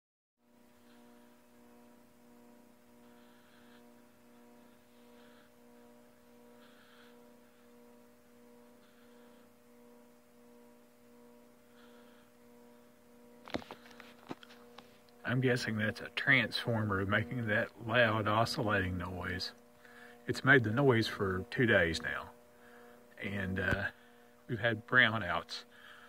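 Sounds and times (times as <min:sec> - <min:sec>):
transformer electrical hum: 0:00.4 - 0:26.0.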